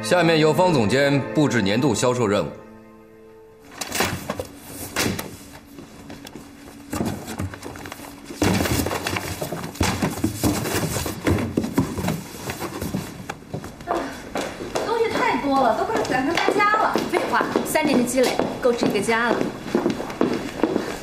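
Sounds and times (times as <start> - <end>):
papers rustling: 3.7 - 13.9
knocks against cardboard box: 8.4 - 12.8.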